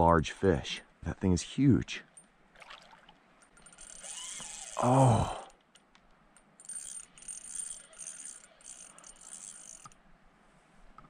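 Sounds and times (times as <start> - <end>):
spinning reel whirring: 3.5 - 4.8, 6.6 - 10.0.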